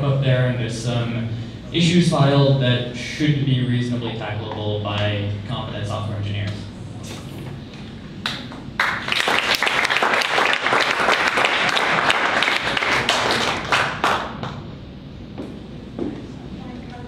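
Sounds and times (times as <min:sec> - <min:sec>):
audience applauding: 0:08.2 - 0:14.6.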